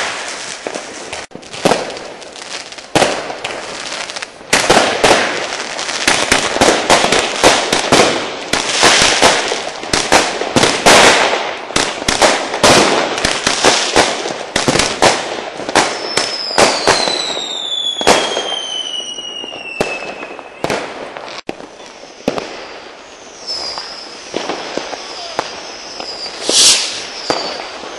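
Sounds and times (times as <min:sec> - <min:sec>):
fireworks and firecrackers banging: 0:00.0 - 0:27.9
firework whistle sliding down: 0:15.9 - 0:20.7, 0:21.6 - 0:27.9.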